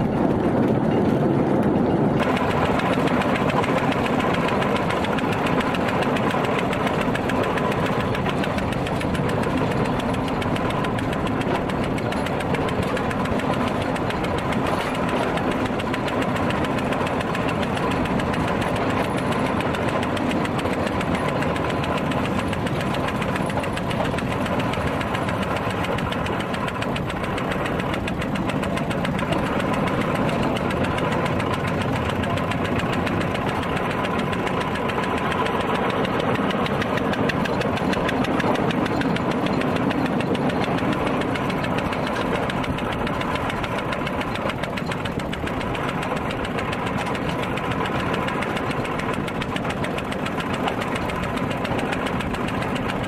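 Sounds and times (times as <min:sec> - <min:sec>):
rail motor car engine running: 0:00.0 - 0:53.0.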